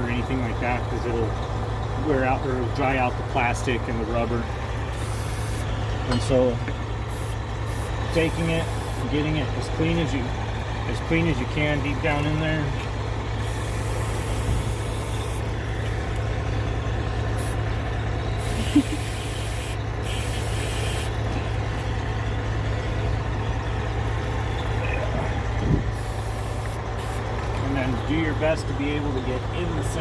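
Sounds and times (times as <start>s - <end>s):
steady low hum: 0.0s - 30.0s
aerosol spray hissing: 4.9s - 5.6s, 7.1s - 9.1s, 13.4s - 15.4s, 17.4s - 17.6s, 18.4s - 21.1s, 26.0s - 27.2s.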